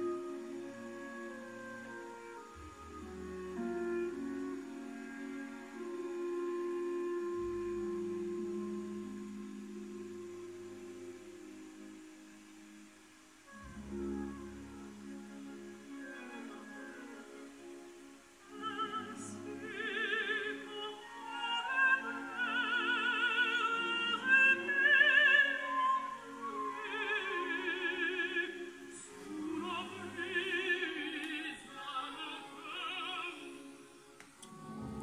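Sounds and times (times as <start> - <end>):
classical accompaniment: 0.0 - 35.0
operatic singing over loudspeakers: 18.5 - 35.0.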